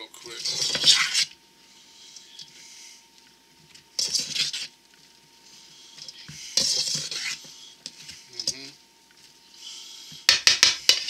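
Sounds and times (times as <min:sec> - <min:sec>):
utensil scraping metal bowl: 0:00.3 - 0:01.4, 0:03.9 - 0:04.8, 0:05.9 - 0:08.8.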